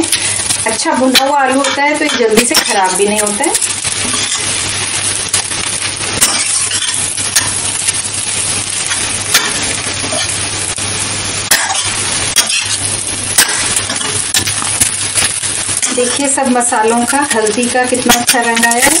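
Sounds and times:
food sizzling: 0:00.0 - 0:19.0
spatula scraping a metal pan: 0:04.0 - 0:04.5, 0:11.6 - 0:12.8.

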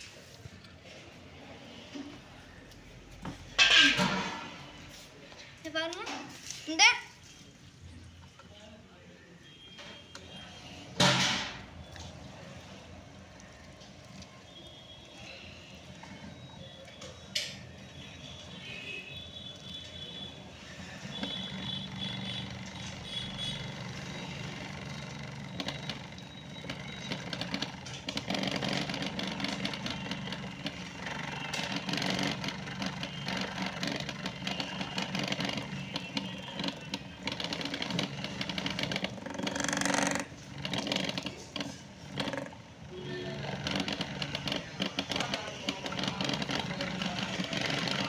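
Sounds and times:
grain rattling in drum: 0:23.7 - 0:42.6, 0:43.4 - 0:48.0.

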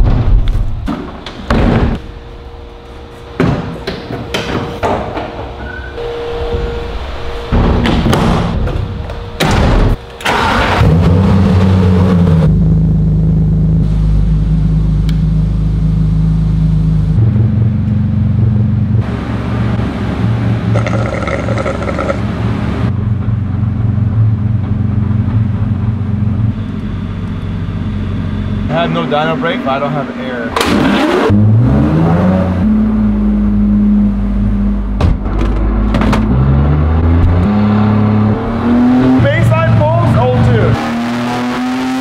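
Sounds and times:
car engine starting and idling: 0:06.0 - 0:40.7
knocks and clatter: 0:35.0 - 0:36.4.

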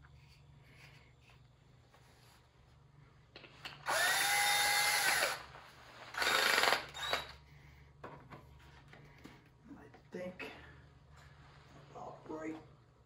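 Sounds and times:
power drill whine: 0:03.8 - 0:07.4.

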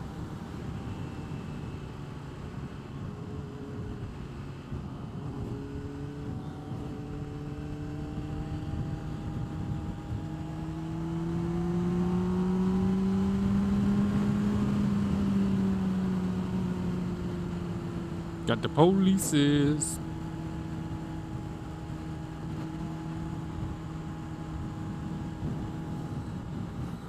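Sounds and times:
wind noise: 0:23.5 - 0:27.0.

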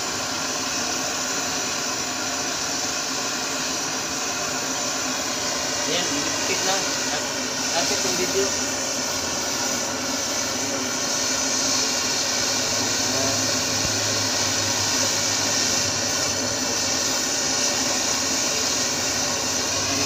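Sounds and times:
butane torch hissing: 0:00.0 - 0:20.0.

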